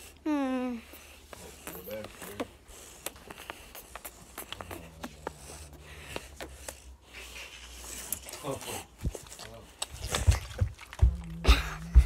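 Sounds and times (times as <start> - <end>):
low steady hum: 9.0 - 12.0.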